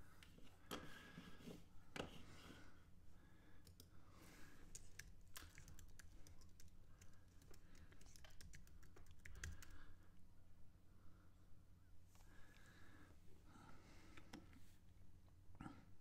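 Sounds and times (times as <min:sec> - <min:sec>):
low steady hum: 0:00.0 - 0:16.0
keyboard keys clicking: 0:04.7 - 0:09.8.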